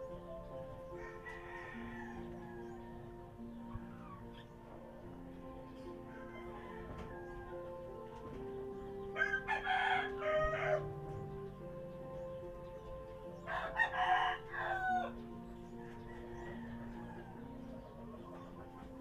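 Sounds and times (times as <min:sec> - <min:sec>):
soft background music: 0:00.0 - 0:19.0
rooster crowing: 0:00.9 - 0:04.3, 0:06.0 - 0:08.1, 0:09.0 - 0:11.2, 0:13.4 - 0:18.0.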